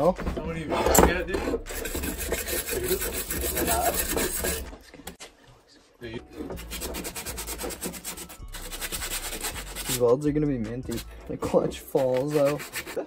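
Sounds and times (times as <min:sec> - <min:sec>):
sandpaper scraping metal: 0:01.0 - 0:04.7, 0:06.5 - 0:10.2, 0:10.9 - 0:11.1, 0:11.9 - 0:13.0.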